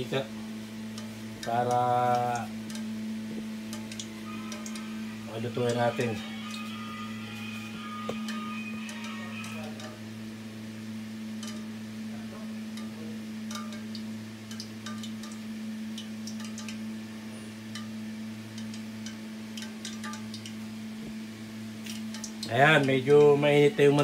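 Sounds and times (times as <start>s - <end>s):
oil ticking and crackling in a pan: 0.0s - 7.1s, 7.8s - 24.0s
low hum: 0.0s - 24.0s.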